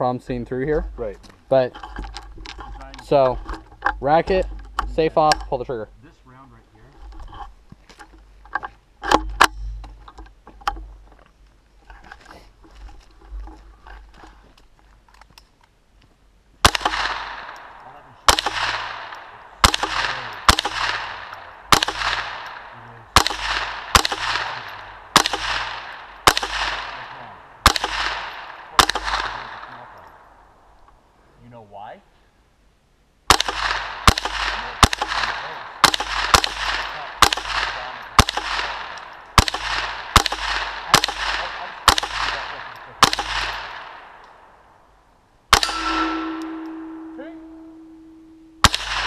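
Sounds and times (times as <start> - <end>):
rifle shots with ringing echo: 16.6 - 30.7, 33.3 - 44.9, 45.5 - 49.0.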